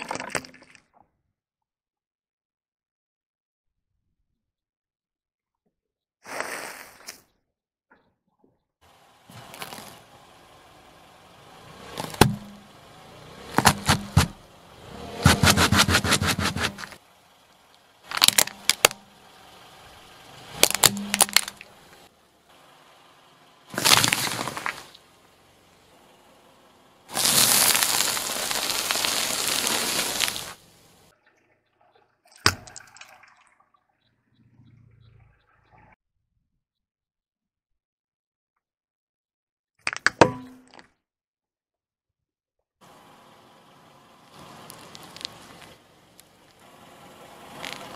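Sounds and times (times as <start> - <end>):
tyre rolling on asphalt: 9.3 - 17.0, 23.7 - 25.9, 27.1 - 31.1, 44.2 - 45.8, 46.6 - 47.9
tyre crushing brittle sticks: 13.5 - 14.4, 15.1 - 17.0, 18.1 - 19.1, 20.5 - 21.7, 23.7 - 25.0, 27.1 - 30.6, 44.3 - 45.8
vegetable cracking under wheel: 18.1 - 19.0, 20.6 - 21.7, 23.7 - 25.0, 27.1 - 30.6.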